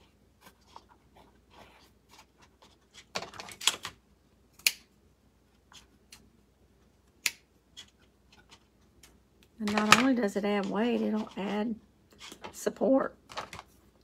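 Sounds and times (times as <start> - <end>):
paper cup crinkling: 9.6 - 12.5.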